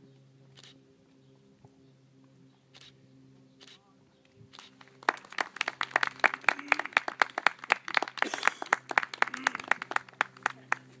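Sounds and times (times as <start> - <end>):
fast hand clapping: 4.8 - 11.0.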